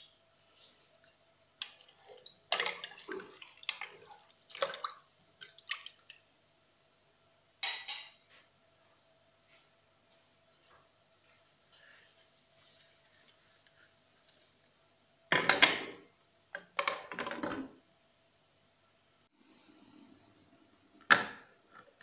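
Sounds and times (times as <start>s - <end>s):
wooden spoon stirring in metal pot: 0.0s - 6.1s.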